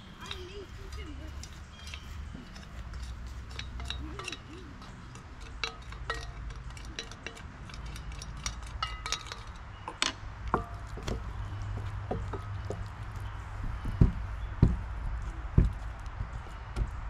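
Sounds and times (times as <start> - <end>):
spoon clinking on steel bowl: 0.2 - 10.7.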